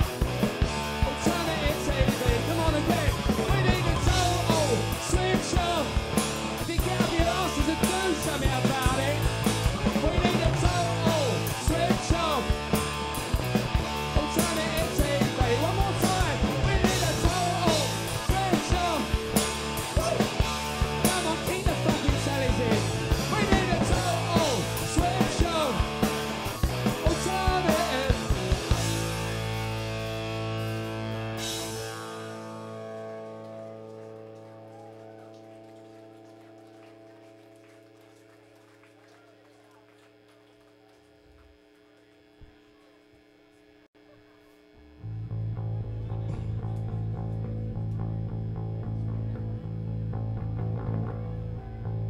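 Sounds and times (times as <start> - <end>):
punk rock band playing live: 0.0 - 35.0.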